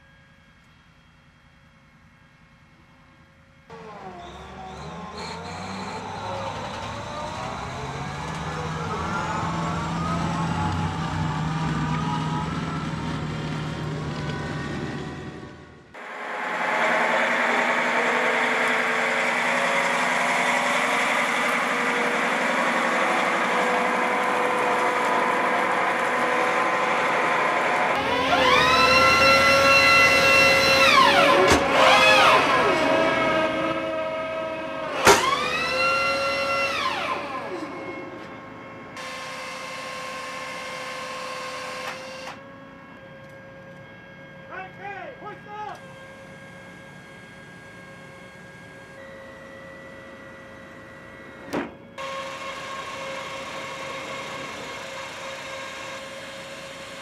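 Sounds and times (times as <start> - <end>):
tracked vehicle engine running: 0.0 - 44.1, 45.8 - 57.0
launcher drive whining: 3.7 - 44.8.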